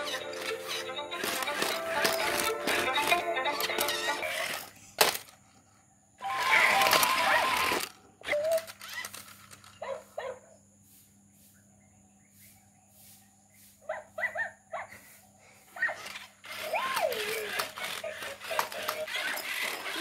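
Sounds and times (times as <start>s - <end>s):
toy robot dog barks: 6.2s - 9.0s, 15.8s - 20.0s.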